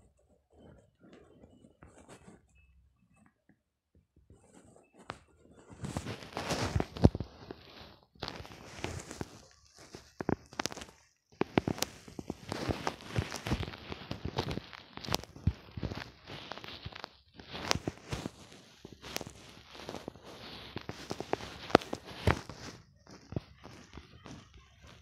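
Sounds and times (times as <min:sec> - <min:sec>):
fingers tapping touchscreen: 0:05.0 - 0:25.0.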